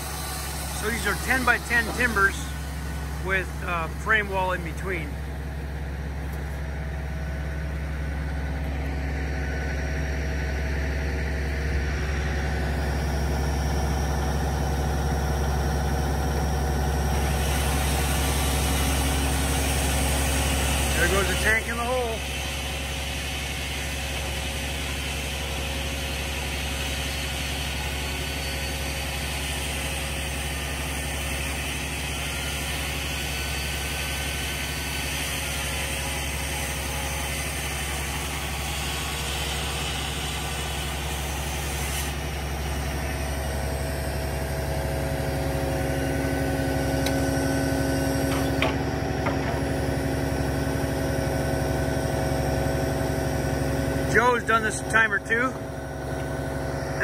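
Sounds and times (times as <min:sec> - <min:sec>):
steady hum: 0:00.0 - 0:26.9
truck engine running: 0:00.0 - 0:57.0.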